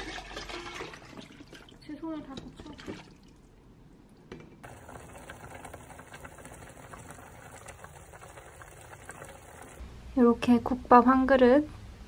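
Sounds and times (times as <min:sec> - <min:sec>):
soup bubbling in a pot: 0:04.6 - 0:09.8.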